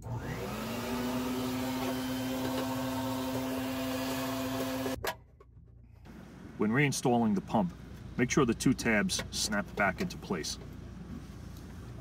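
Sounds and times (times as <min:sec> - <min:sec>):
shop vac running: 0:00.0 - 0:05.0.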